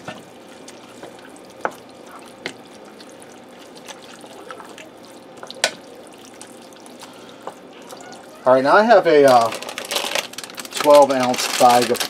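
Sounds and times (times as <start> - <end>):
spoon stirring wet food squelching: 0.0 - 9.7.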